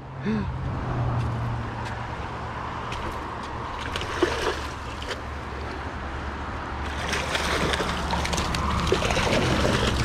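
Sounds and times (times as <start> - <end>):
fish splashing in water: 2.9 - 5.8, 6.8 - 10.0
river rushing: 6.8 - 10.0.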